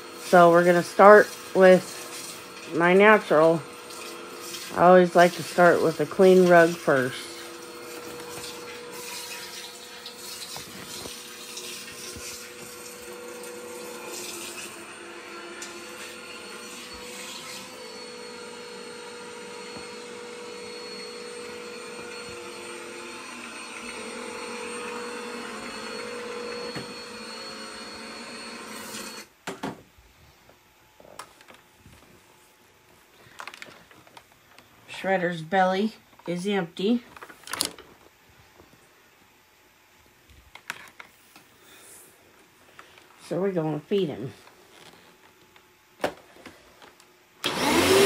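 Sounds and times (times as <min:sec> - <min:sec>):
upright vacuum cleaner running: 0:00.0 - 0:29.4, 0:46.0 - 0:48.0.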